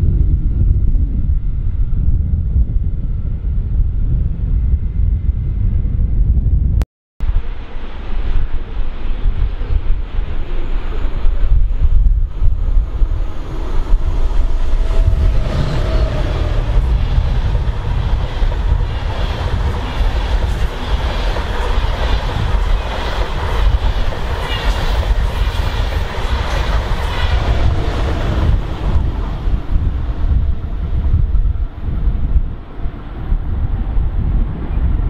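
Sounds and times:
wind rumbling on microphone: 0.0 - 35.0
train running on rails: 7.2 - 35.0.

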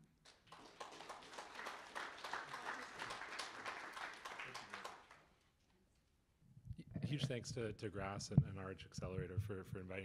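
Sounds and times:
audience applauding: 0.2 - 5.3.

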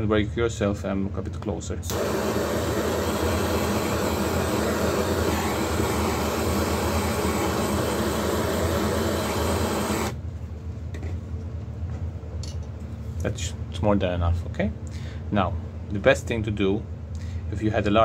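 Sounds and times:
gas torch flame: 1.9 - 10.2.

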